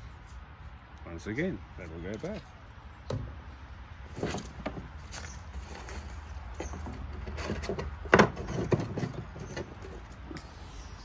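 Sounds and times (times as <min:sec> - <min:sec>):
objects knocking and clattering: 0:06.6 - 0:09.8.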